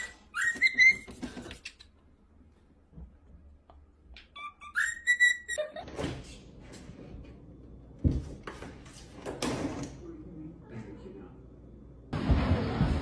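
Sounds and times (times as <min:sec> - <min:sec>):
cockatiel whistling: 0:00.0 - 0:01.1, 0:04.4 - 0:05.6.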